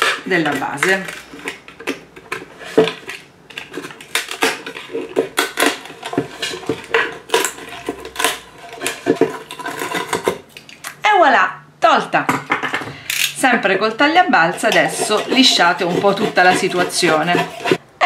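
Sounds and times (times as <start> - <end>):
knife scraping bamboo plate: 0.0 - 10.4, 14.5 - 17.8.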